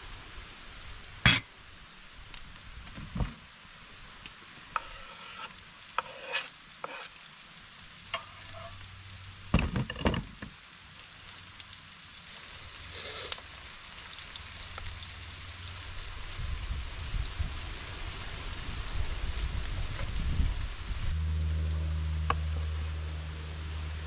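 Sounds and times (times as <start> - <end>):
frying sizzle in a pan: 0.0 - 24.0
light clinks and scrapes: 8.2 - 8.8.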